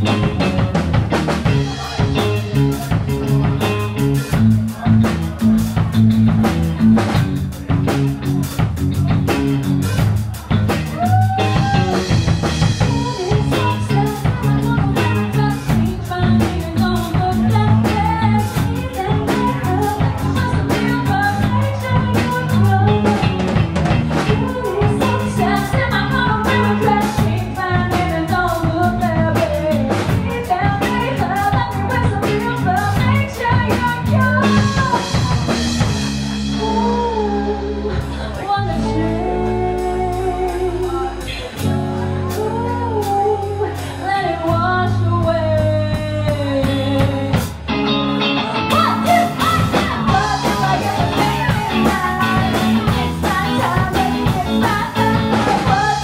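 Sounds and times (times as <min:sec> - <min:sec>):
rock band playing: 0:00.0 - 0:56.0
woman singing: 0:11.0 - 0:47.6, 0:48.4 - 0:56.0.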